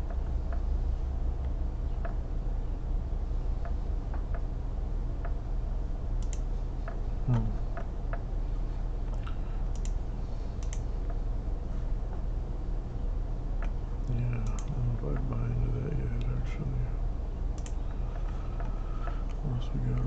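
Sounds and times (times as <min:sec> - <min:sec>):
steady low hum: 0:00.0 - 0:20.0
computer mouse clicks: 0:06.2 - 0:08.3, 0:09.1 - 0:11.2, 0:13.6 - 0:15.3, 0:17.5 - 0:20.0
low voice sound: 0:07.2 - 0:07.7, 0:14.0 - 0:17.1, 0:19.2 - 0:20.0.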